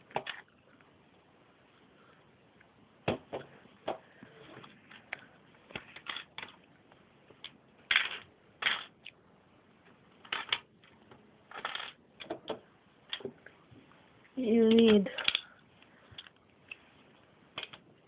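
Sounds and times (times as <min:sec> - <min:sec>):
plastic bricks clicking: 0:07.4 - 0:09.2, 0:10.2 - 0:10.7, 0:11.5 - 0:13.3, 0:14.7 - 0:15.5, 0:17.6 - 0:17.8.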